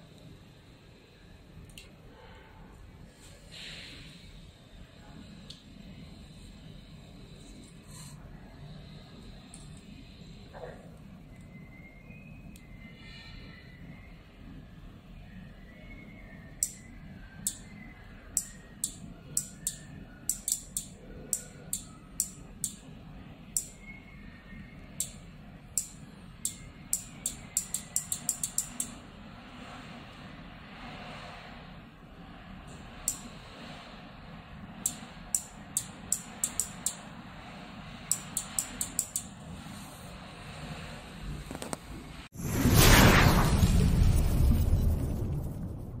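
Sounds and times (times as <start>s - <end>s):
faint steady hum: 0.0s - 42.3s
relay clicking: 18.3s - 22.9s, 25.8s - 29.0s, 34.8s - 37.1s, 38.0s - 39.4s.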